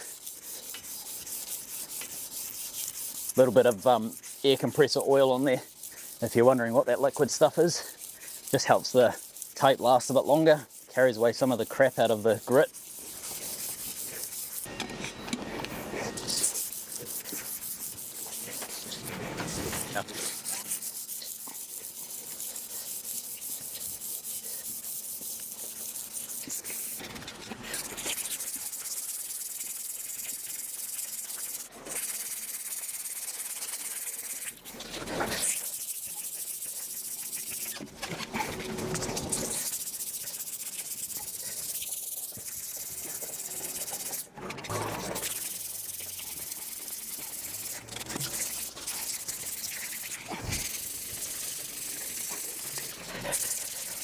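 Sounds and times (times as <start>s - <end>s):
emery cloth scraping metal pipe: 0.0s - 25.4s.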